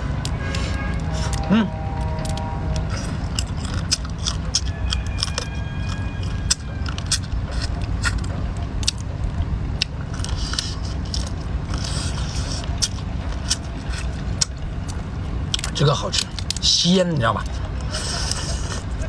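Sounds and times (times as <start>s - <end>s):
low rumble: 0.0s - 16.6s
shells crunching and cracking: 3.3s - 9.1s.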